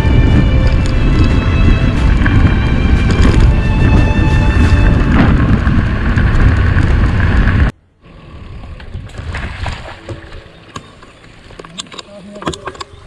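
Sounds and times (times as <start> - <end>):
wind buffeting microphone: 0.0 - 7.8
bike tyre rolling on gravel: 0.0 - 11.7.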